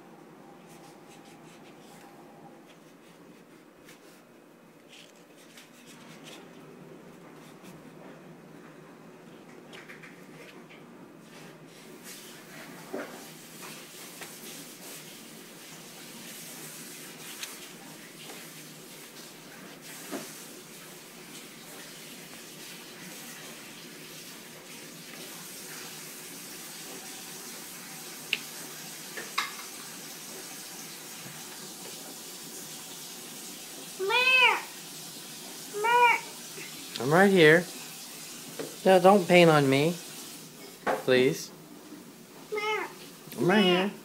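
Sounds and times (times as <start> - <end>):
toddler calling: 34.0 - 34.7, 35.7 - 36.4, 42.5 - 43.0.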